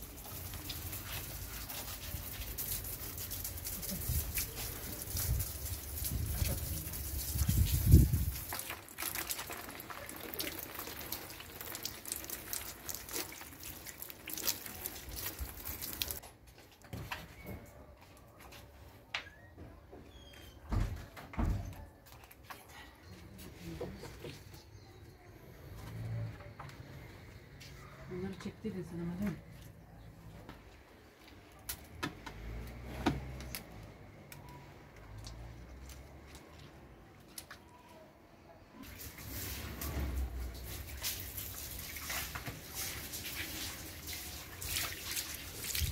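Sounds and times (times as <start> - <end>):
hose water spraying on leaves: 0.0 - 16.2, 38.8 - 45.9.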